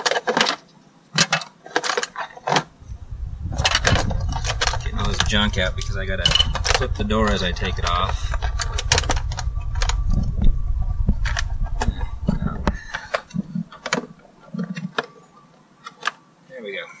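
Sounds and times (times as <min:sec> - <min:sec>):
low rumble: 0:02.7 - 0:13.8.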